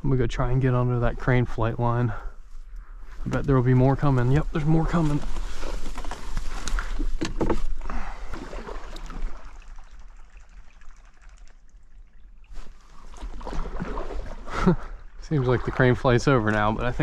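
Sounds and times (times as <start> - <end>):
paddle strokes splashing: 4.9 - 10.6, 12.4 - 16.8.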